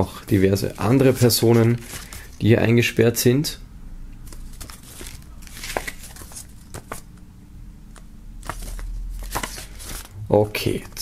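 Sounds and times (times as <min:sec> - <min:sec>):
paper pages turning: 0:00.3 - 0:02.4, 0:04.3 - 0:07.1, 0:08.4 - 0:11.0.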